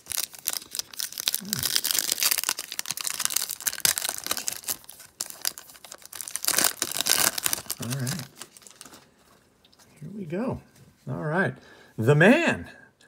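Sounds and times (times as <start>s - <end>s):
foil wrapper crinkling and tearing: 0.0s - 9.3s.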